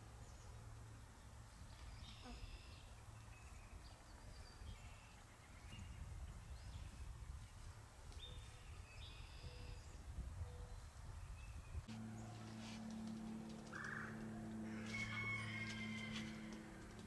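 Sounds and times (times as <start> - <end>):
steady low rumble: 11.6 - 15.2.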